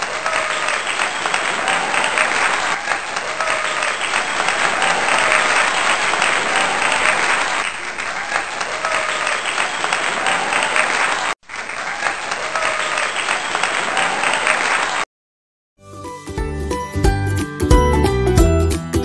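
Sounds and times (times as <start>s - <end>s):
crowd applause: 0.0s - 15.1s.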